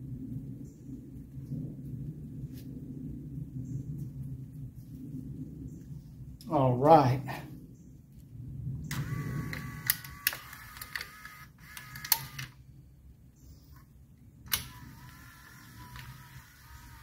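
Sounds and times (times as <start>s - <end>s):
electric motor whining: 8.9s - 12.6s, 14.5s - 17.0s
sharp clips clicking: 8.9s - 12.6s, 14.5s - 15.2s.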